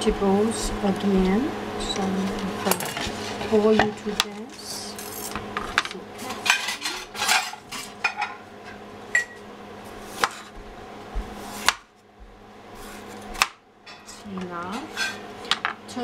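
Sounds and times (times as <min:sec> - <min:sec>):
steady low hum: 0:00.0 - 0:16.0
metal pots and pans clattering: 0:05.6 - 0:08.4.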